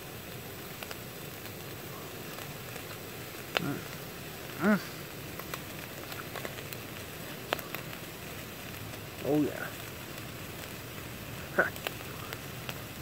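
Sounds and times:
bacon sizzling in a frying pan: 0.0 - 13.0
spitting fat pops: 0.6 - 13.0
man humming: 3.6 - 5.1.

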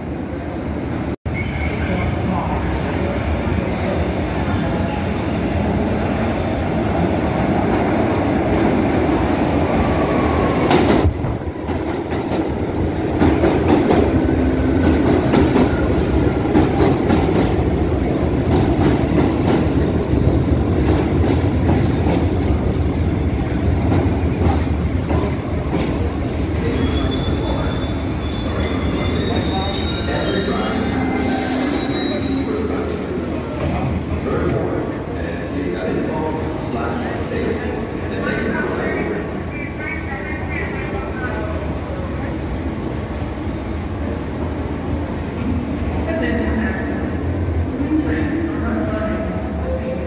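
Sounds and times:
subway train rumbling: 0.0 - 50.0
high-pitched wheel squeal: 26.8 - 32.6.

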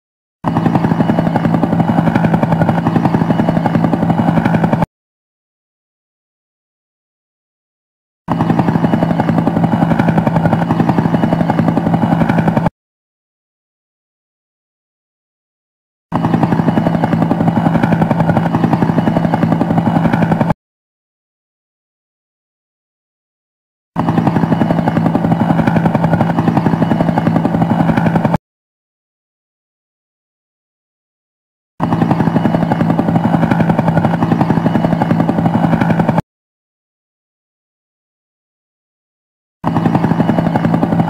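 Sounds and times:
helicopter rotor beating: 0.4 - 4.9, 8.3 - 12.7, 16.1 - 20.6, 24.0 - 28.4, 31.8 - 36.2, 39.6 - 41.0.

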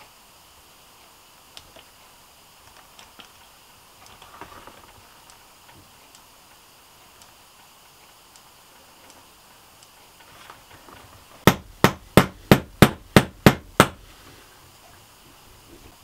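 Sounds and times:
hammer striking ceiling: 11.4 - 14.1.

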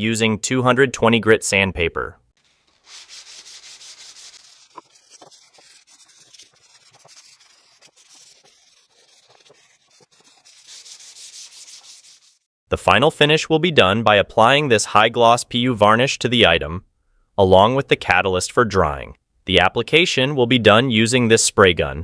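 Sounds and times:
sandpaper rasping on wood: 2.4 - 12.5.

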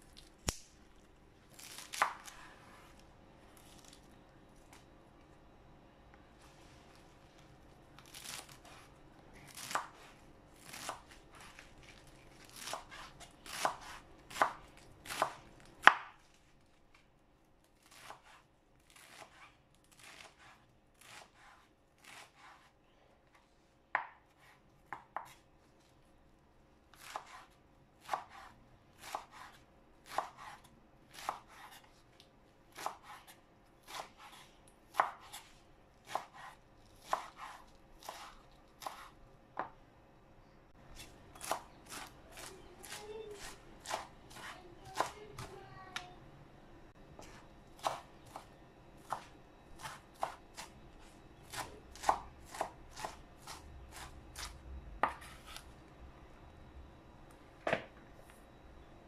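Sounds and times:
knife chopping on cutting board: 12.5 - 16.2, 20.0 - 22.7, 23.9 - 25.4, 27.0 - 31.9, 32.8 - 39.8, 41.0 - 45.5, 47.2 - 50.7, 51.5 - 55.6.

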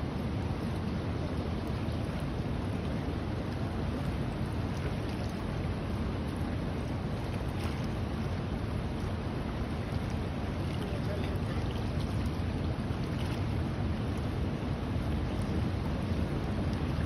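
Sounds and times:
river current rushing: 0.0 - 17.0.

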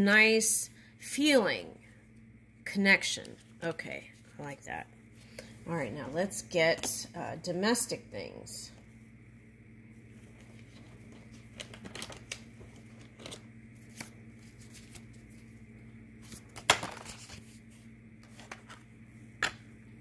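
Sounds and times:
faint low hum: 0.0 - 20.0
cards shuffling and rustling: 10.3 - 15.6, 16.2 - 18.9.

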